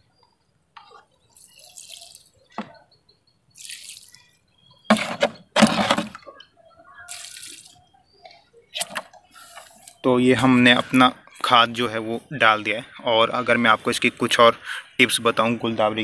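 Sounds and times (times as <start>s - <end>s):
liquid splashing onto soil: 1.3s - 2.3s, 3.6s - 4.2s, 7.1s - 7.8s.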